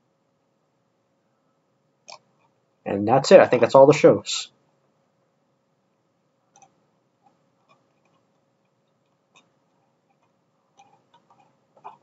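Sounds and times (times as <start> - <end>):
soft clicks: 6.5 - 9.5.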